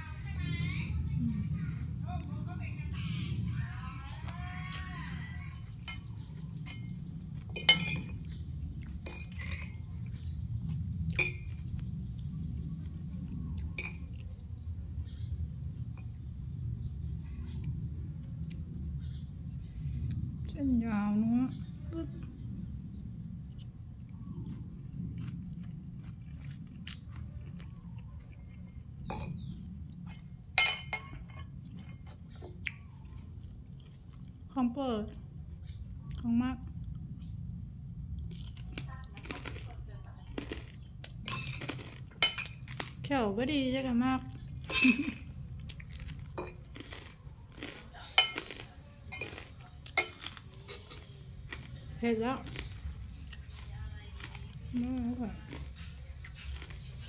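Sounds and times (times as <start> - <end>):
low steady hum: 0.0 - 57.0
close chewing: 3.0 - 16.7, 22.2 - 43.1, 44.2 - 57.0
cutlery clinking on china plate: 7.6 - 8.3, 30.6 - 31.5, 41.3 - 42.6, 44.6 - 45.2, 46.4 - 51.6.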